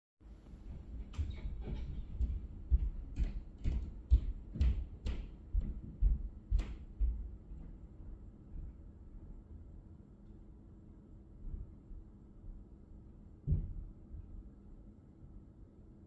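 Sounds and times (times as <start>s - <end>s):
footsteps thudding through ceiling: 0.4s - 9.3s, 13.4s - 14.5s.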